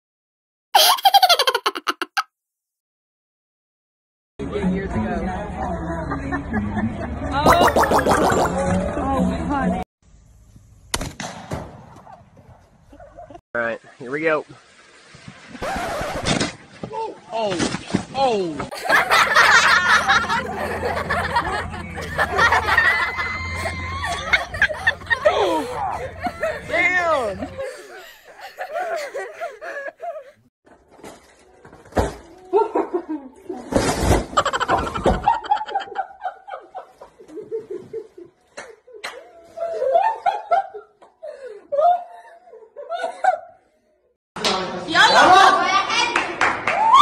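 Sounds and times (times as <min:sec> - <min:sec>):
people shouting and laughing: 0:18.7 - 0:30.4, 0:38.6 - 0:43.5, 0:44.8 - 0:47.0
steady low hum: 0:19.9 - 0:28.3.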